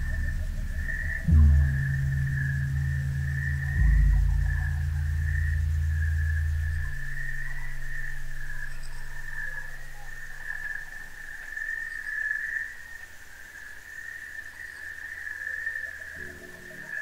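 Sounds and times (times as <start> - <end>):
soft low tones: 0.0 - 11.8
low hum: 0.0 - 11.9
high-pitched animal chorus: 0.0 - 12.4.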